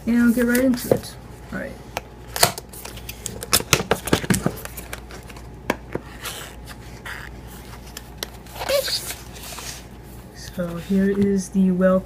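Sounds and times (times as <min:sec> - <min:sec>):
paper rustling: 0:02.7 - 0:11.4.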